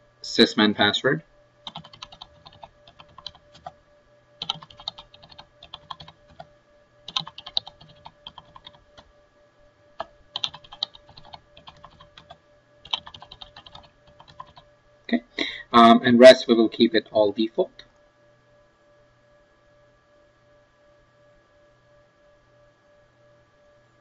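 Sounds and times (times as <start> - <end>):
keyboard typing: 1.6 - 3.8, 4.4 - 6.5, 7.1 - 9.1, 10.0 - 14.7.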